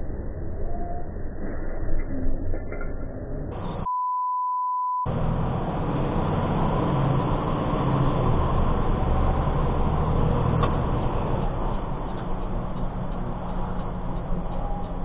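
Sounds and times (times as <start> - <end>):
truck diesel engine with road noise: 3.5 - 3.9, 5.1 - 15.0
electronic beep: 3.6 - 5.1.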